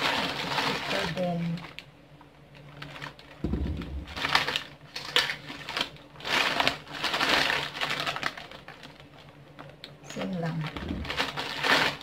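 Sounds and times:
plastic bag rustling: 0.0 - 1.8, 2.6 - 12.0
dull bump: 3.4 - 4.2.

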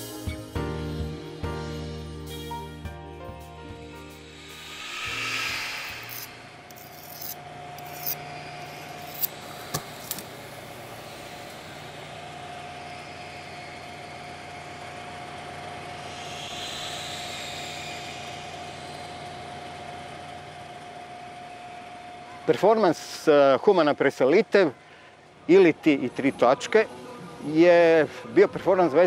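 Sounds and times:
steady hum: 1.0 - 28.3
knife scraping on sharpening steel: 5.6 - 9.4.

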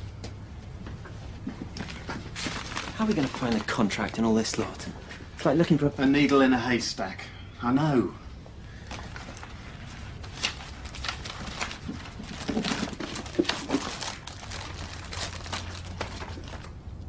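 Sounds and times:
paper rustling and crinkling: 1.8 - 4.8, 8.8 - 16.8.

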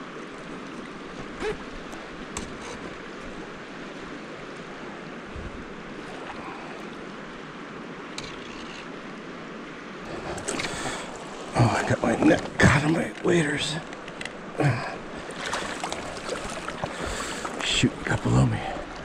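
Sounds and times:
creek rushing: 0.0 - 19.0
faint clicks and knocks: 12.2 - 14.4.

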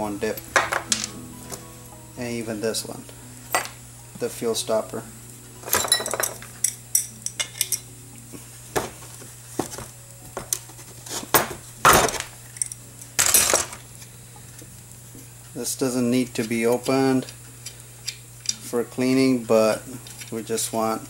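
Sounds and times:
low hum: 0.0 - 11.0
metal parts clinking on wood: 5.6 - 7.8, 11.4 - 13.8.

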